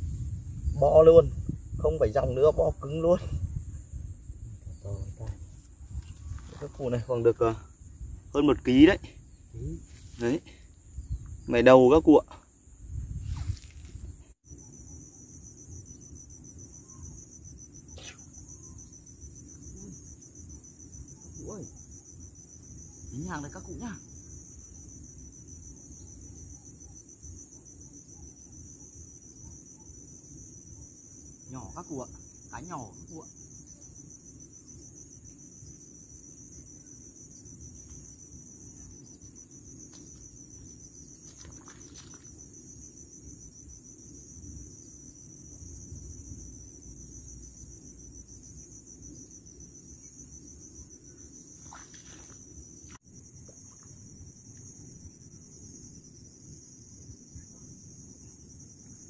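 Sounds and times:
wind rumble on microphone: 0.0s - 10.1s, 10.8s - 11.7s, 12.7s - 14.3s
crickets chirping: 0.0s - 59.0s
high-pitched insects chorus: 0.0s - 59.0s.

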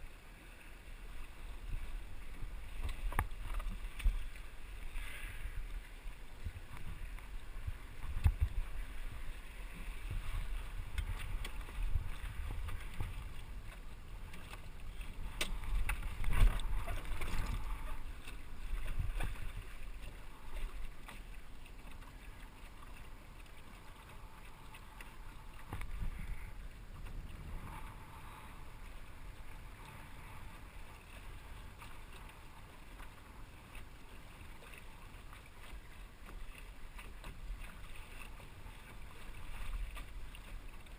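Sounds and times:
water washing along hull: 0.0s - 40.9s
wind buffeting microphone: 6.4s - 13.7s, 25.7s - 28.3s.

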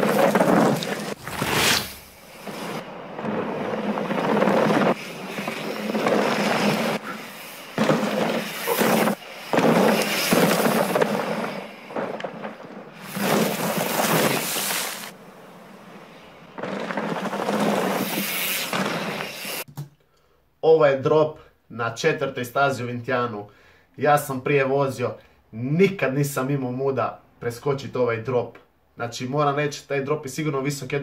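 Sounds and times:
bike tyres skidding on gravel: 0.0s - 19.7s.

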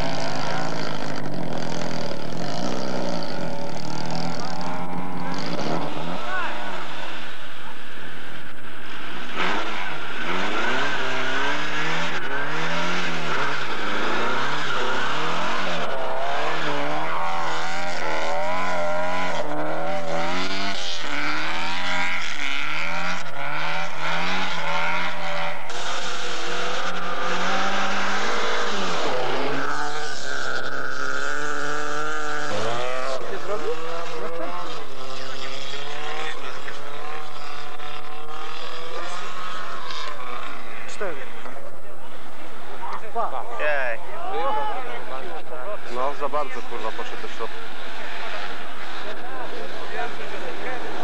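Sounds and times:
car engine revving hard: 0.0s - 51.0s.

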